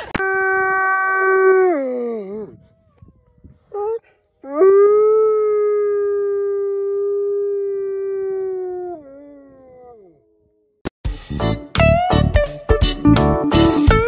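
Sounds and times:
wolf howling: 0:00.2 - 0:10.4.

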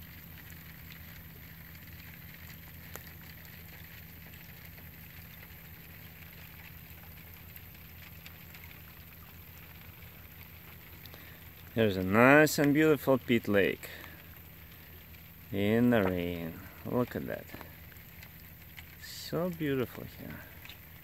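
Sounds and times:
low steady hum: 0:00.0 - 0:21.0
rain patter on water: 0:00.0 - 0:21.0.

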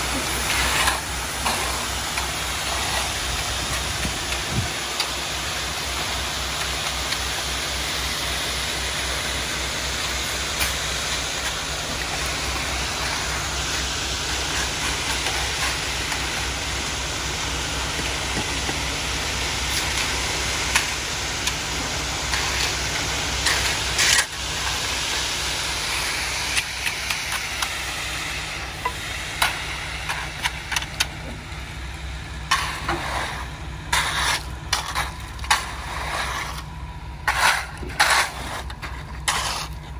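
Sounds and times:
rake scraping and knocking: 0:00.0 - 0:05.2, 0:10.2 - 0:16.6, 0:19.6 - 0:25.2, 0:32.5 - 0:39.9
diesel truck engine running: 0:00.0 - 0:39.9
wet concrete rushing down chute: 0:00.0 - 0:39.9.

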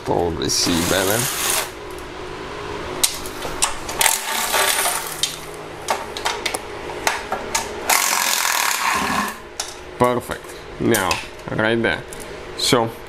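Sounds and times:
cordless driver running: 0:00.6 - 0:01.7, 0:07.9 - 0:09.3.

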